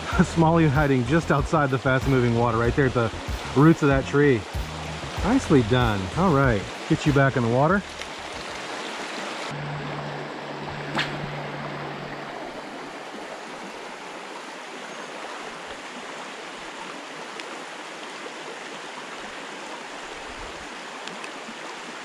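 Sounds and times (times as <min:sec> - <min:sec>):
creek rushing over rapids: 0:00.0 - 0:22.0
sharp click: 0:10.9 - 0:11.3.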